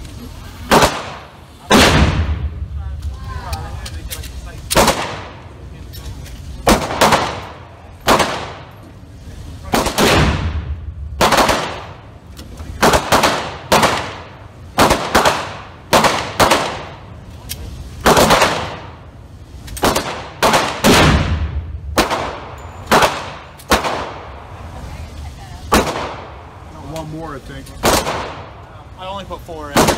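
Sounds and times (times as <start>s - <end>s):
gunshots echoing indoors: 0.7s - 2.6s, 9.7s - 12.0s, 19.8s - 24.4s.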